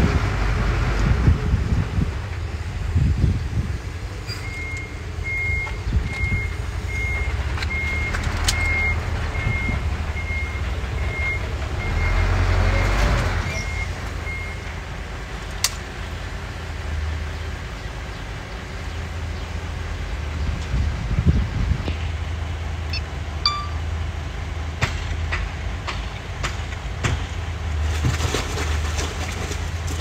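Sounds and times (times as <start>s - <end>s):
truck engine drone: 0.0s - 27.8s
truck reversing alarm beeps: 4.2s - 14.8s, 22.9s - 23.9s.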